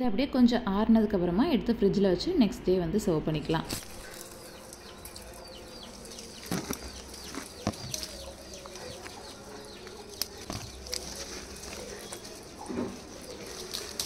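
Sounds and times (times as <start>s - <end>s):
small birds chirping: 3.4s - 14.0s.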